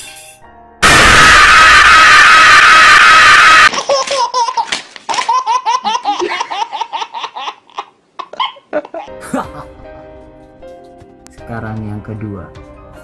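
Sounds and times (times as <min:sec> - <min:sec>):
loud jumpscare scream: 0:00.8 - 0:03.7
baby laughing: 0:03.7 - 0:09.5.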